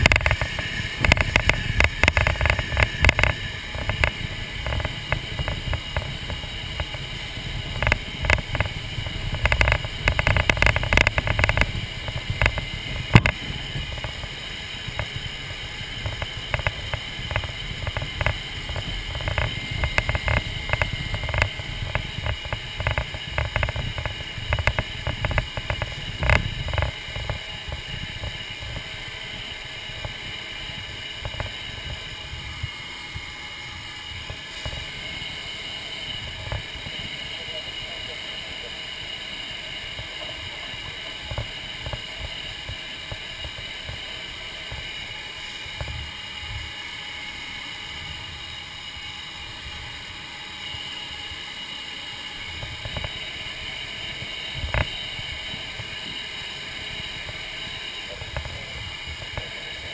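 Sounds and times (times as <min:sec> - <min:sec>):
jet engines whining: 0:00.0 - 0:59.9
knocks and rattles: 0:07.6 - 0:14.3.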